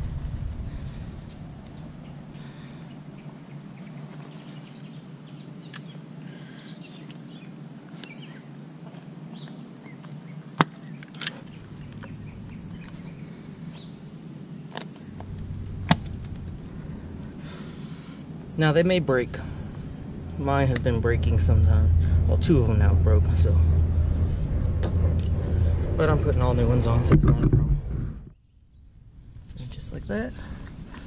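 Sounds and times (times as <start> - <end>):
steady low hum: 0.0 - 5.6, 10.9 - 31.0
faint bird chirps: 9.4 - 22.4.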